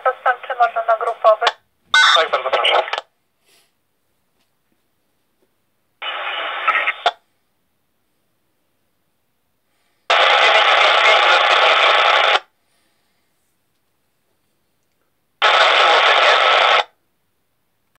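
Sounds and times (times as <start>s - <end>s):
radio static hiss: 0.0s - 3.1s, 6.0s - 7.3s, 10.1s - 12.5s, 15.4s - 17.0s.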